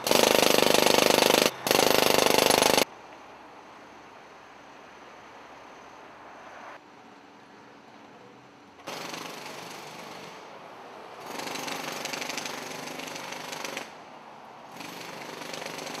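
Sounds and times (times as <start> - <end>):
jackhammer hammering: 0.0 - 2.8, 8.8 - 10.4, 11.2 - 13.9, 14.7 - 16.0
street noise: 0.0 - 16.0.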